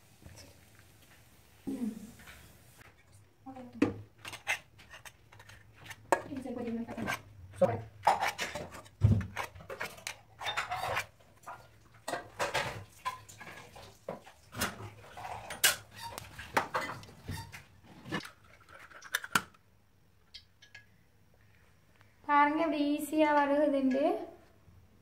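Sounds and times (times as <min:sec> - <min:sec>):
metal spoon scraping steel bowl: 0:04.2 - 0:07.3, 0:08.0 - 0:11.2.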